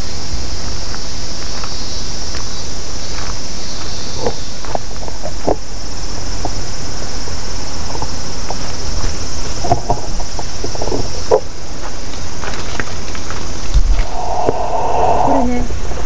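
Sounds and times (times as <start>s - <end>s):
cicadas buzzing: 0.0s - 16.0s
low rumble: 13.7s - 16.0s.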